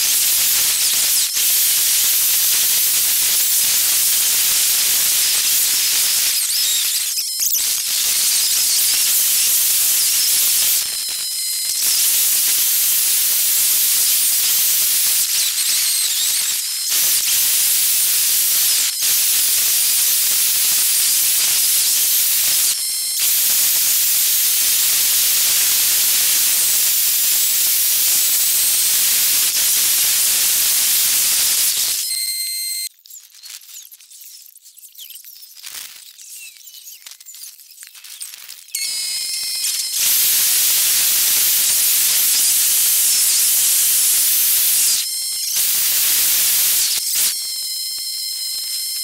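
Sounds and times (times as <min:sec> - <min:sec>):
short whistling tones: 0:04.7 - 0:13.2, 0:14.0 - 0:21.6, 0:29.9 - 0:49.0.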